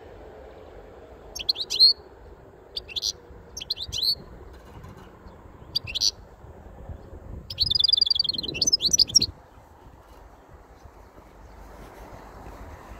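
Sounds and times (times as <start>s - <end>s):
goldfinch singing: 1.3s - 2.1s, 2.7s - 4.3s, 5.3s - 6.2s, 7.5s - 9.3s.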